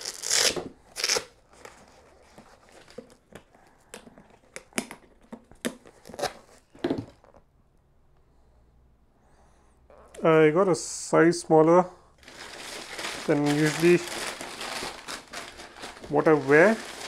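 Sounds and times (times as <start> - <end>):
tissue paper rustling: 12.2 - 17.0.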